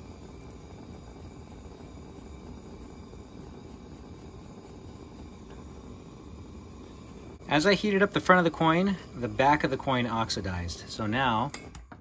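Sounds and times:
gas torch flame rushing: 0:00.0 - 0:12.0.

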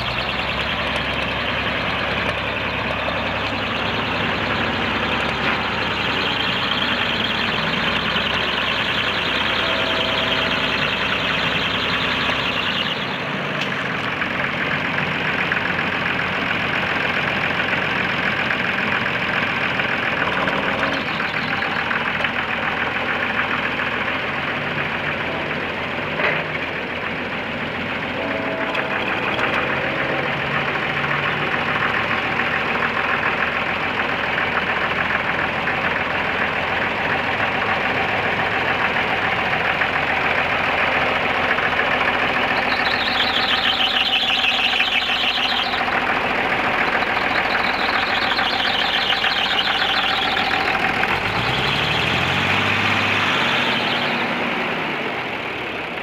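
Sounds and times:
wavering high-pitched squeal: 0:00.0 - 0:13.4, 0:20.2 - 0:22.1, 0:28.1 - 0:33.0, 0:42.2 - 0:54.6
tractor engine running: 0:00.0 - 0:56.0.

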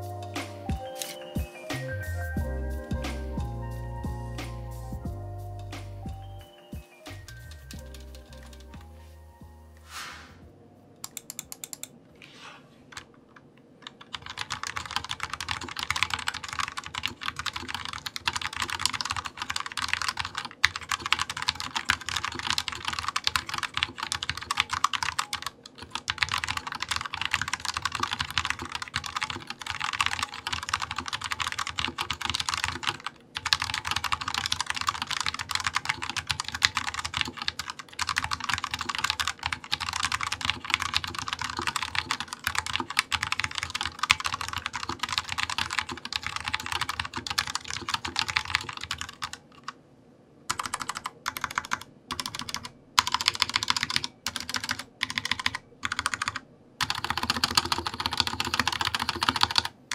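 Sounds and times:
mechanical keyboard typing: 0:07.1 - 0:08.8, 0:11.0 - 0:12.0, 0:13.8 - 0:49.8, 0:50.5 - 0:59.8.

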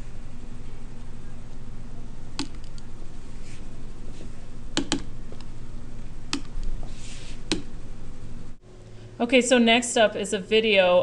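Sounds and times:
low electrical hum: 0:00.0 - 0:11.0
computer clicks: 0:02.4 - 0:02.9, 0:04.8 - 0:05.1.

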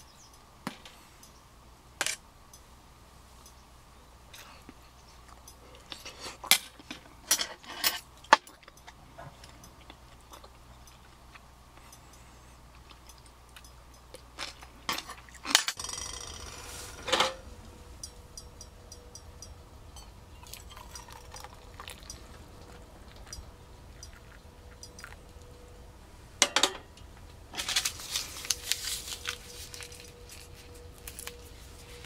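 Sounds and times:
water pouring into a metal mug: 0:20.4 - 0:23.3.

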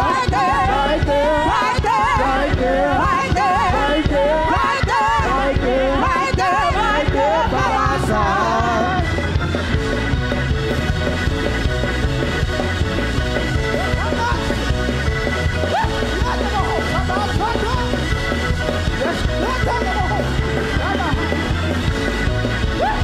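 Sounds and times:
woman singing amplified: 0:00.0 - 0:09.2
bass line: 0:00.0 - 0:23.0
church band playing: 0:00.0 - 0:23.0.

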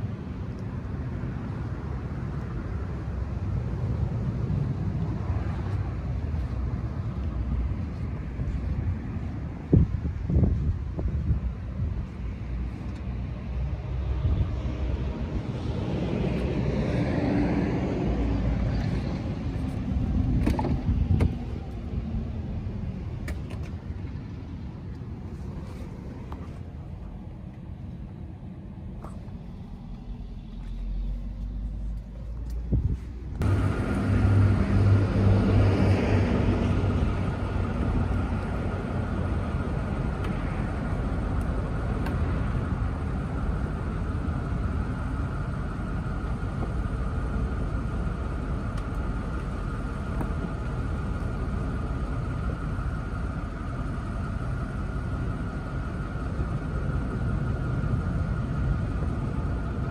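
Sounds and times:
low hum: 0:00.0 - 0:59.9
hydraulic pump whine: 0:33.4 - 0:59.9.

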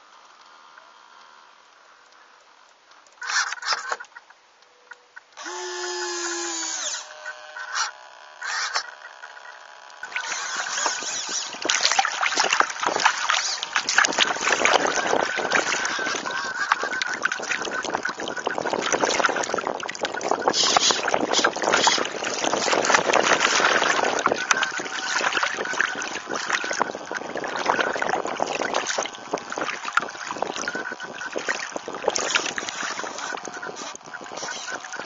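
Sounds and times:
water splashing against hull: 0:07.7 - 0:35.0
wind buffeting microphone: 0:10.6 - 0:35.0.

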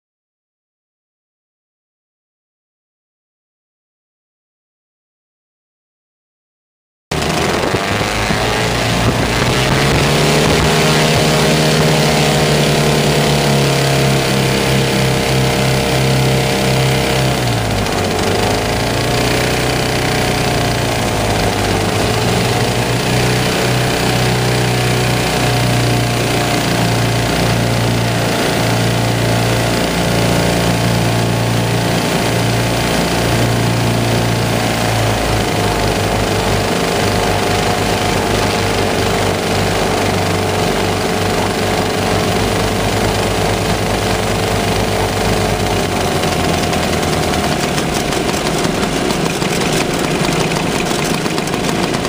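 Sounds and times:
two-stroke engines running: 0:07.1 - 0:52.0.

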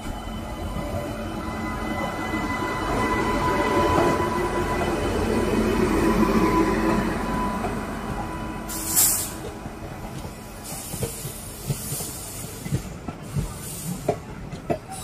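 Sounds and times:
locomotive whine and rumble: 0:00.0 - 0:11.7
loud air hiss: 0:08.7 - 0:09.5, 0:10.6 - 0:14.1
train wheels clicking on rail joints: 0:08.7 - 0:15.0.

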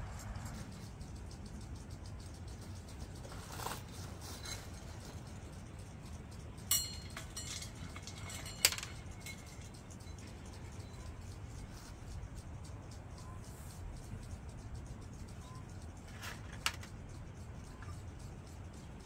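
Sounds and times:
sharp clinks: 0:00.2 - 0:19.0
soft rustle: 0:03.0 - 0:05.6.

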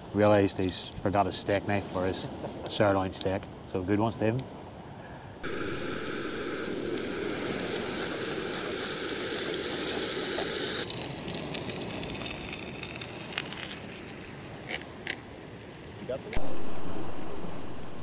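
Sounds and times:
butter sizzling in a frying pan: 0:05.4 - 0:14.3
gas burner hissing: 0:05.4 - 0:18.0.

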